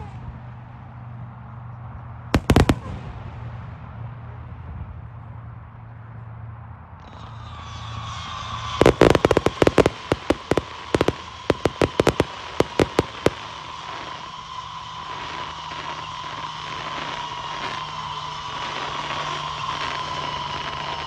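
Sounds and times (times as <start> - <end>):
fireworks banging: 2.4 - 4.0, 7.1 - 21.0
drone propellers whining: 7.1 - 21.0.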